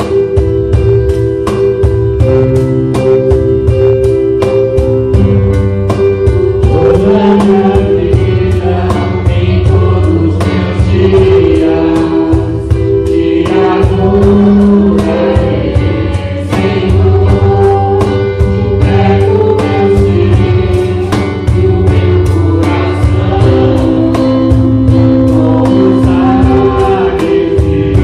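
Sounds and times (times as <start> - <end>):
instrumental accompaniment with beat: 0.0 - 28.0
people singing together: 6.0 - 28.0.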